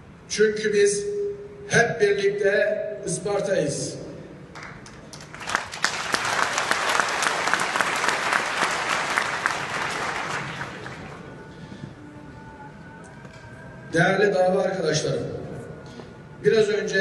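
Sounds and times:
audience clapping: 4.5s - 11.3s.

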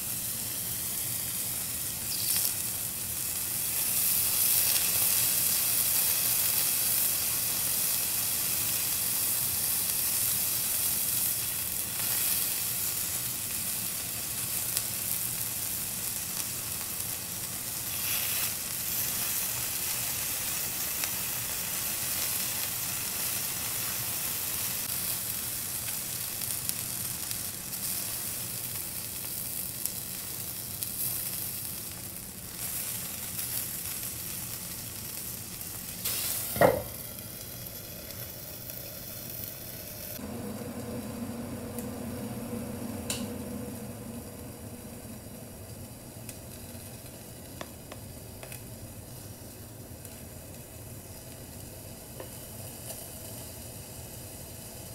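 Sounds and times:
skewers sizzling on a griddle: 0.0s - 54.9s.

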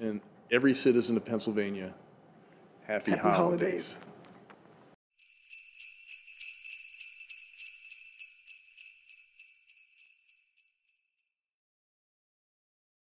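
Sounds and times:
sleigh bells jingling: 5.1s - 11.3s.

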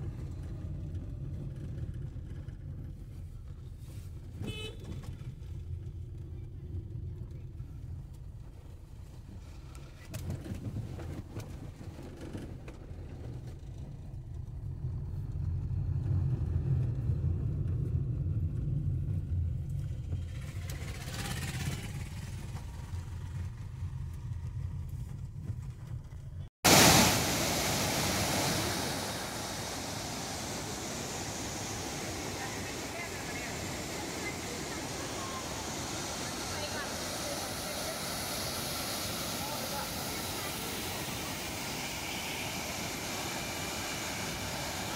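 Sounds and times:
car road and engine rumble: 0.0s - 26.6s, 27.8s - 44.9s
waterfall rushing: 26.7s - 44.9s.

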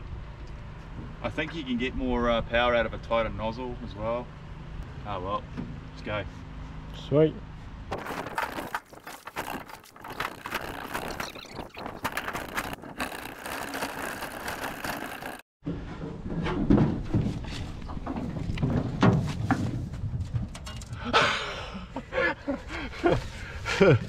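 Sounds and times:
single-cylinder engine running: 12.0s - 15.4s.

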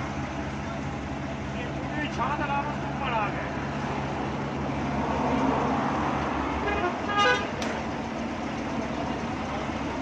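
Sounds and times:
engine hum and road noise: 0.0s - 10.0s
vehicle horn toot: 6.6s - 7.6s.

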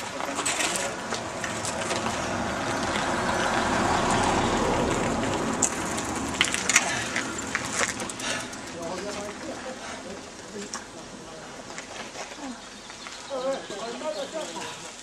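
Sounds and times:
bicycle clicks and rattles: 0.0s - 9.4s
bicycle tyres crunching gravel: 0.0s - 15.0s.

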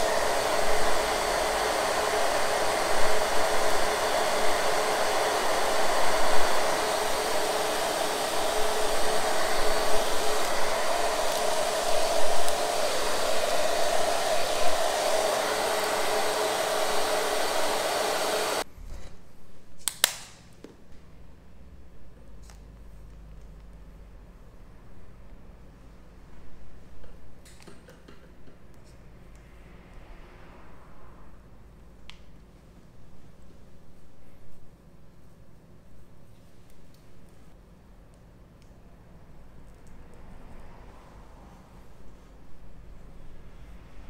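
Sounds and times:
hair dryer blowing: 0.0s - 18.7s.

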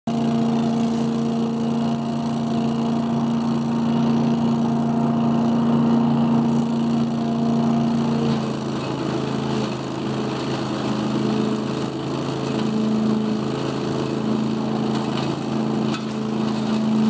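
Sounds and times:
leaf vacuum engine droning: 0.1s - 17.0s.

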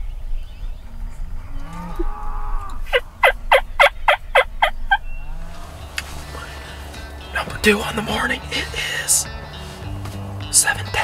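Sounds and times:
wild turkey yelping: 2.0s - 6.9s.

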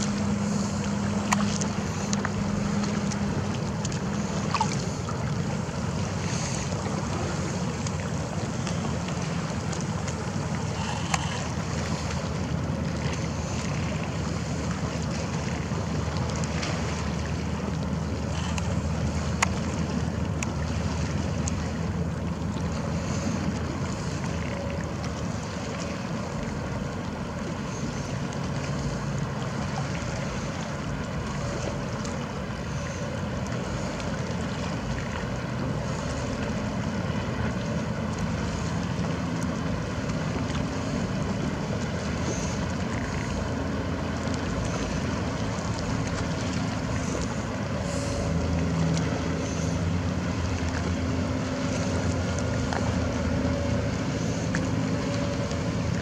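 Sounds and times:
low hum: 0.0s - 56.0s
small waves lapping: 0.0s - 56.0s.

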